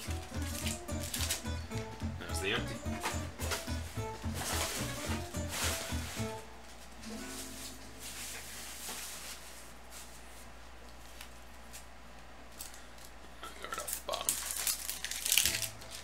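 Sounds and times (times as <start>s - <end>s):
wrapper tearing and crinkling: 0.3s - 1.5s, 4.4s - 6.4s, 12.5s - 16.0s.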